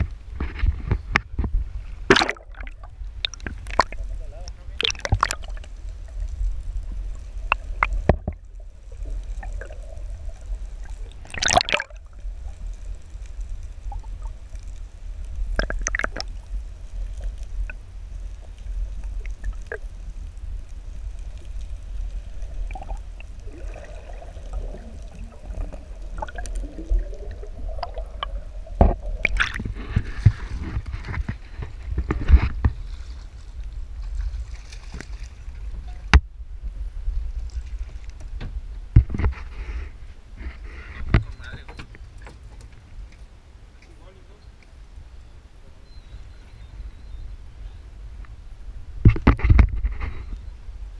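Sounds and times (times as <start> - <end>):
underwater knocks and clicks: 0.0 - 6.2, 6.8 - 12.2, 15.5 - 19.9, 22.4 - 32.8, 49.0 - 50.1
muffled underwater rumble: 0.0 - 42.2, 42.8 - 50.9.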